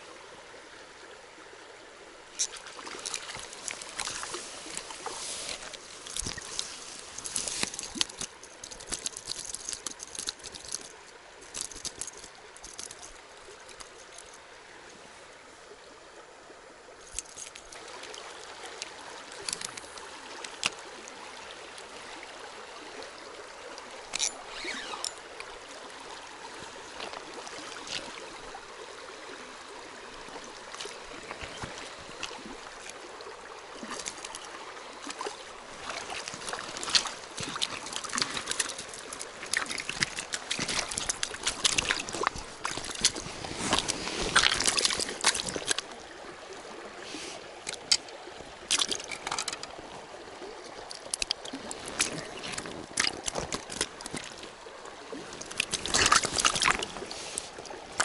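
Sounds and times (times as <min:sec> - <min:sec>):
river running over rocks: 0:00.0 - 0:58.0
small clicks and splashes: 0:02.3 - 0:14.5, 0:17.0 - 0:22.0, 0:23.7 - 0:25.8, 0:26.4 - 0:28.6, 0:30.1 - 0:46.1, 0:47.6 - 0:58.0.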